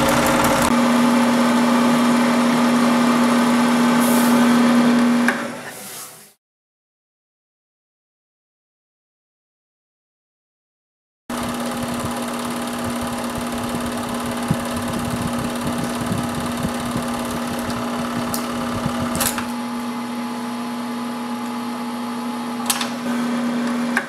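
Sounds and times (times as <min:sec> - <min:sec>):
projector motor hum: 0:00.0 - 0:02.1, 0:11.3 - 0:23.6.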